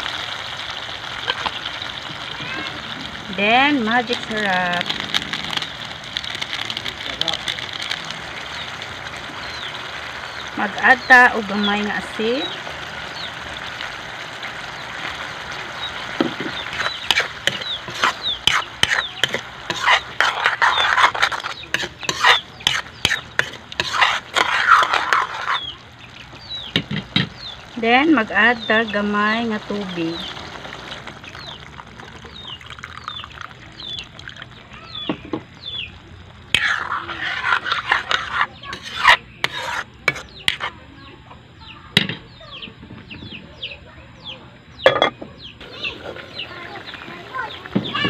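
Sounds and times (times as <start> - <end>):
sauce bubbling gently: 0.0 - 38.2
food sizzling in a wok: 0.0 - 40.8, 45.6 - 48.0
metal ladle scraping wok: 16.2 - 25.8, 36.5 - 40.8
bird chirping: 25.4 - 36.0.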